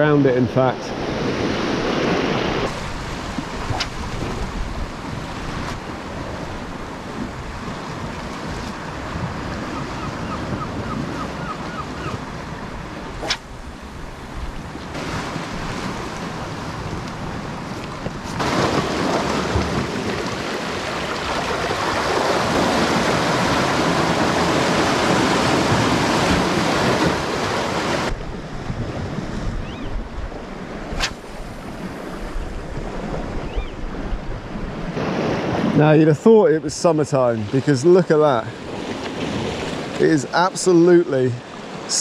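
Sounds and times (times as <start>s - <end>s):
sea surf washing against rocks: 0.0s - 42.0s
wind on microphone: 0.8s - 36.0s
sharp click: 31.0s - 31.2s.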